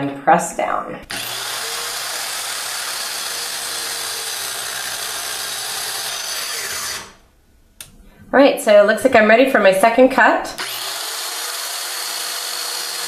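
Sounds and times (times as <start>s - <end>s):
circular saw cutting wood: 1.1s - 7.3s, 10.6s - 13.0s.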